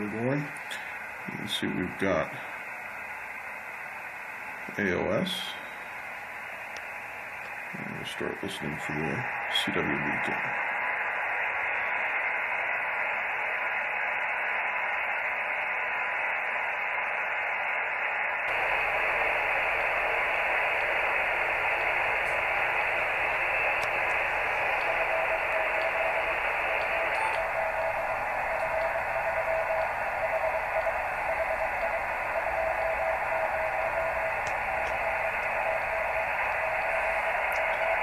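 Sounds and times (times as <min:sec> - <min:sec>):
radio receiver hiss: 0:00.0 - 0:38.0
faint morse code tone: 0:26.8 - 0:27.6.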